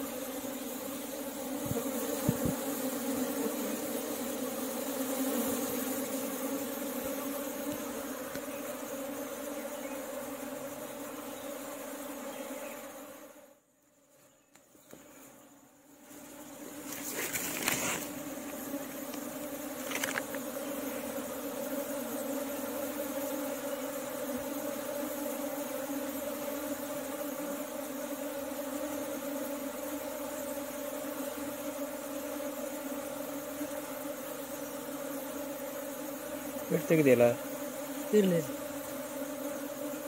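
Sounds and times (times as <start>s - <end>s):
bees humming: 0.0s - 40.0s
brief rustles: 16.8s - 18.1s, 19.8s - 20.4s.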